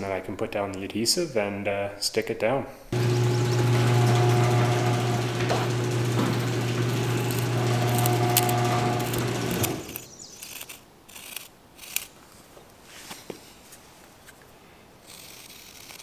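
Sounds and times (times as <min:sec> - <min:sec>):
low electric motor hum: 0:02.9 - 0:10.1.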